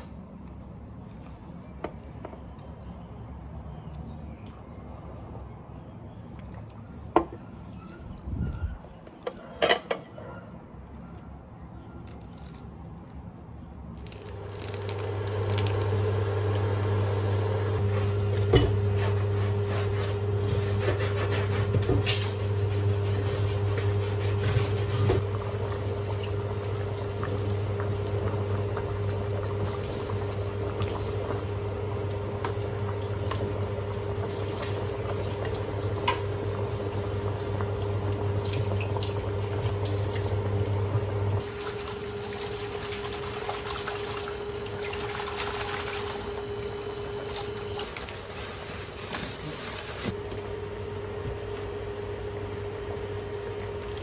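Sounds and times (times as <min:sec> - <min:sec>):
water boiling: 0:14.1 - 0:54.0.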